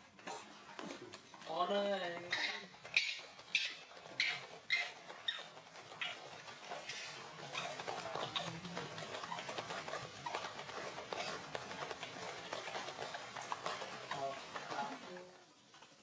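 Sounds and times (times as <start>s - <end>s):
monkey squealing and crying: 2.3s - 6.3s.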